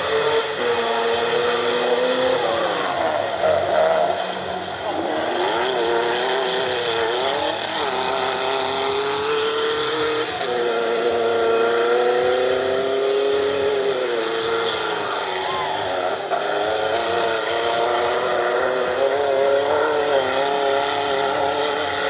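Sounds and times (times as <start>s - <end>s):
buggy engine revving hard: 0.0s - 22.0s.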